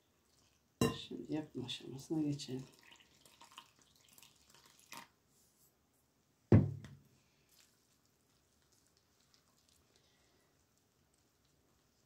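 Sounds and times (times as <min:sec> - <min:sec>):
water pouring into bowl: 0:01.4 - 0:05.1
loud thump: 0:06.5 - 0:06.9.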